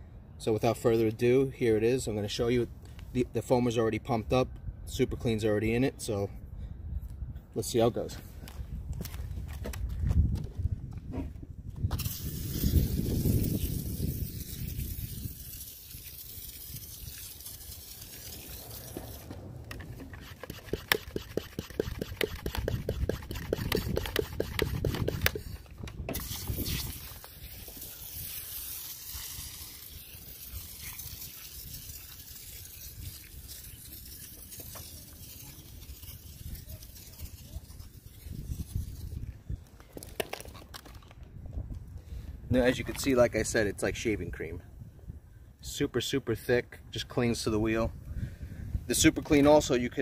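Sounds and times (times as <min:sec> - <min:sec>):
sprayer clicking and spitting: 0:11.9 - 0:37.8
foam sprayer hissing: 0:12.0 - 0:37.7.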